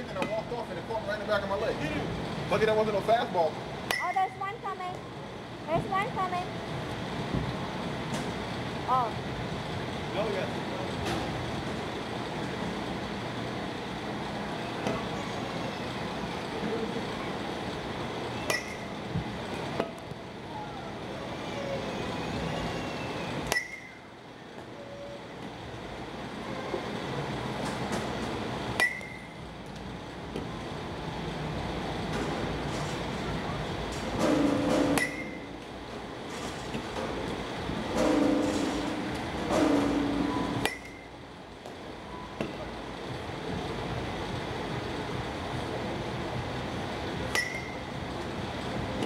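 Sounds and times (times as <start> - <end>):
batting cage background noise: 0.0 - 49.0
baseball bat hitting ball: 34.2 - 35.4.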